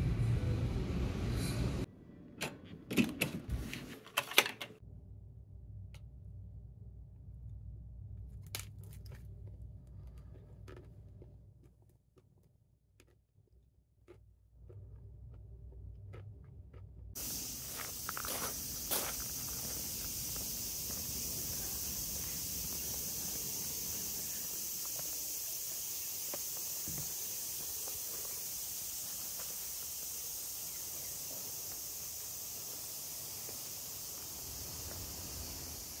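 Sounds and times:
shrill insect chorus: 0:17.2 - 0:36.0.

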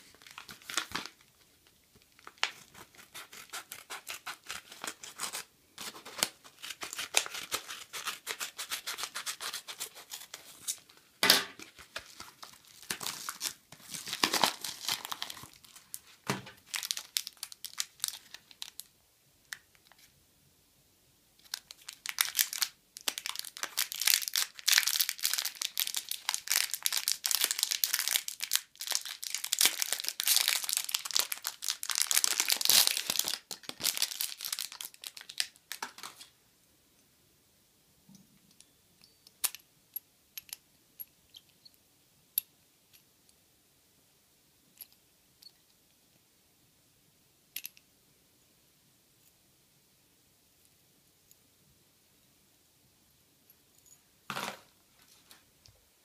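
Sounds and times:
plastic bag crinkling: 0:00.0 - 0:10.9, 0:11.5 - 0:18.9, 0:21.4 - 0:36.3
scissors snipping envelope: 0:02.4 - 0:10.4.

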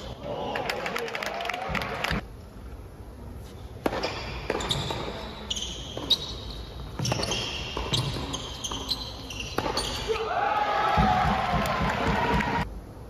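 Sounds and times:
shoes squeaking on court: 0:03.4 - 0:10.2
tennis ball bouncing: 0:03.8 - 0:05.2, 0:05.9 - 0:10.0
tennis racket strikes: 0:03.8 - 0:05.2.

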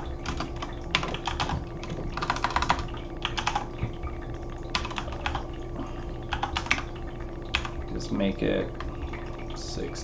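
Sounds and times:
typing on computer keyboard: 0:00.2 - 0:03.9, 0:04.7 - 0:05.4, 0:06.3 - 0:06.9, 0:07.5 - 0:07.8.

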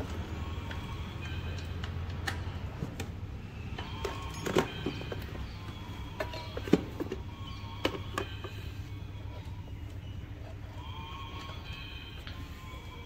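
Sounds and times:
steady low hum: 0:00.0 - 0:13.0
metal tools clicking and knocking: 0:03.8 - 0:05.4, 0:06.1 - 0:07.2.

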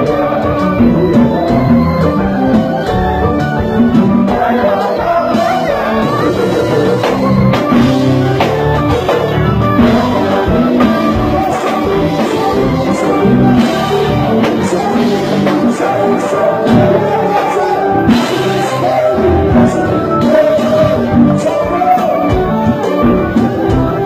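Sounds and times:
drum kit beating: 0:00.0 - 0:24.0
live band playing: 0:00.0 - 0:24.0
person singing: 0:00.0 - 0:24.0.

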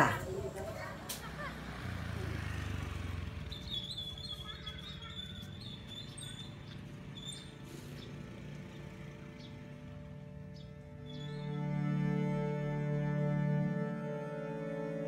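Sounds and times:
distant traffic rumble: 0:00.0 - 0:15.0
high-pitched chirping trill: 0:03.4 - 0:06.6.

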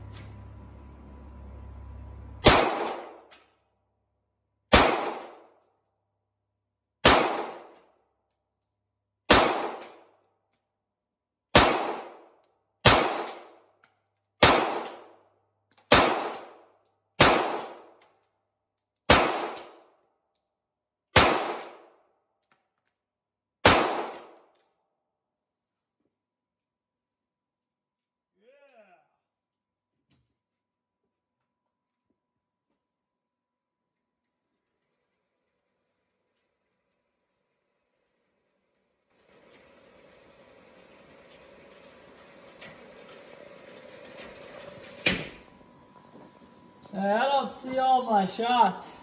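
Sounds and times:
pistol shots echoing indoors: 0:02.4 - 0:03.5, 0:04.7 - 0:05.8, 0:07.0 - 0:08.0, 0:09.3 - 0:10.2, 0:11.5 - 0:13.7, 0:14.4 - 0:15.3, 0:15.9 - 0:18.1, 0:19.1 - 0:20.0, 0:21.1 - 0:22.1, 0:23.6 - 0:24.6.

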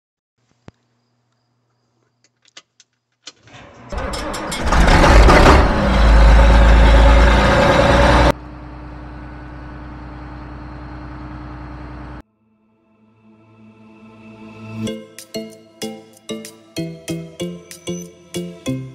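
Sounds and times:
engine cranking and running: 0:03.4 - 0:09.4.

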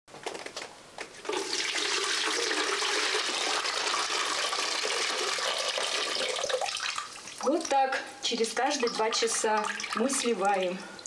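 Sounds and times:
water pouring into plastic bucket: 0:01.3 - 0:07.8, 0:08.7 - 0:10.4.

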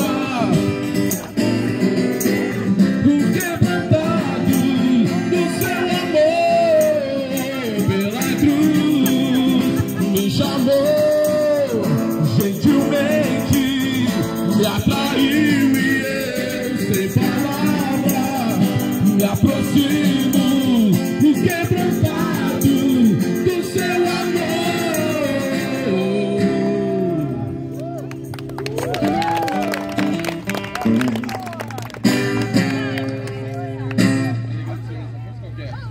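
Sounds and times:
acoustic guitar: 0:00.0 - 0:35.9
group singing a worship song: 0:15.0 - 0:18.2.

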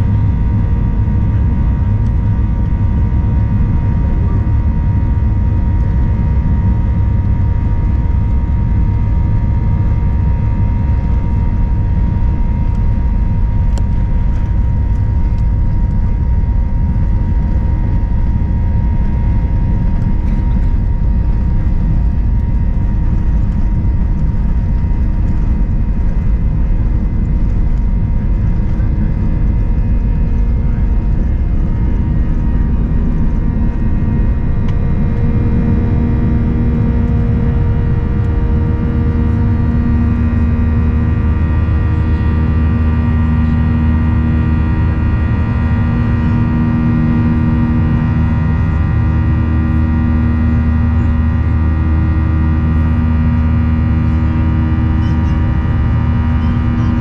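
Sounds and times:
wheels rumbling on runway: 0:00.0 - 0:57.0
jet engines whining: 0:17.3 - 0:57.0.

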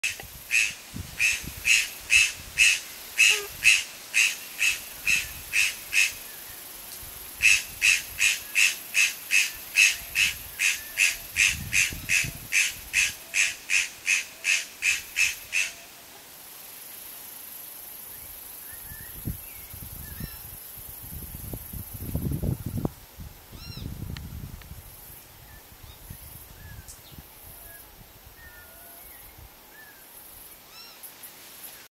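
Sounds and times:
bird harsh calls: 0:00.5 - 0:06.2.

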